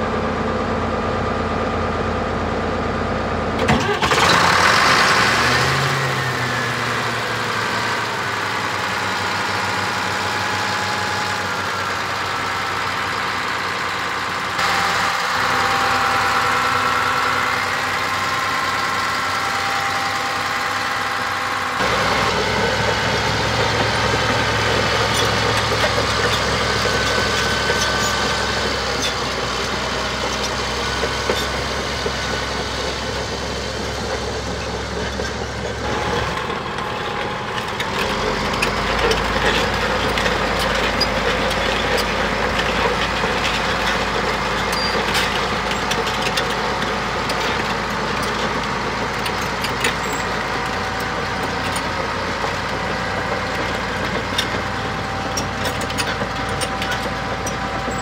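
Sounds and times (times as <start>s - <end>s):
diesel engine running: 0.0s - 58.0s.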